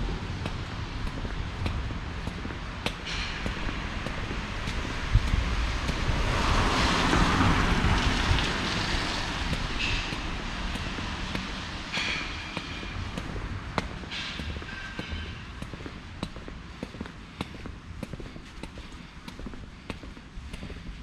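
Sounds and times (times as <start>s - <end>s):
car tyres hissing on wet street: 0.0s - 14.9s
low traffic rumble: 0.0s - 21.0s.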